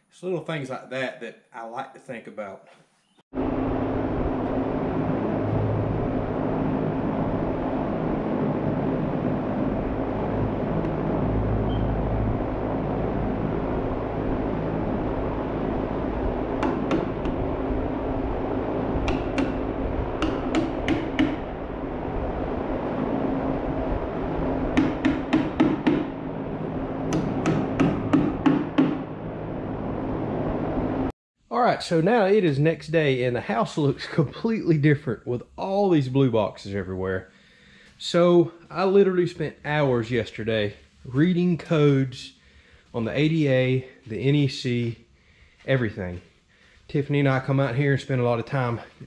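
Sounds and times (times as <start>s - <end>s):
steady background hum: 3.4s - 31.1s
hammer striking nails: 16.6s - 17.4s, 19.0s - 19.6s, 20.2s - 21.5s, 24.7s - 26.1s, 27.1s - 29.0s.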